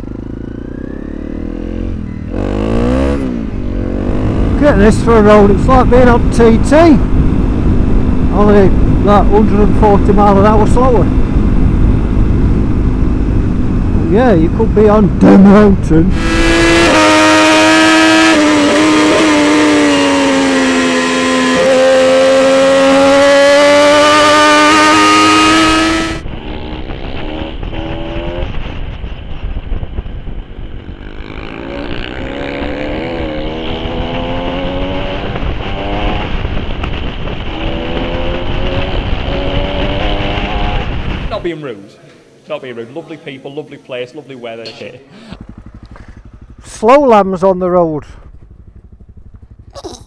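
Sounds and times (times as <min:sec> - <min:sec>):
motorcycle engine at high revs: 0:00.0 - 0:41.4, 0:45.1 - 0:50.0
wind rumble on microphone: 0:03.4 - 0:17.0, 0:25.6 - 0:41.4
single-cylinder motorbike engine: 0:45.1 - 0:50.0.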